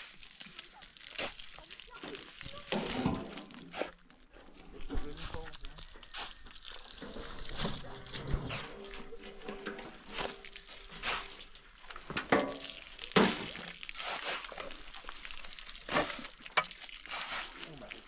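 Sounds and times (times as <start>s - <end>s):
water pouring from a hose: 0.0s - 18.0s
shovel scraping wet cement: 2.7s - 4.0s, 7.5s - 9.1s, 9.9s - 11.5s, 13.2s - 14.7s, 15.9s - 16.4s, 17.0s - 17.7s.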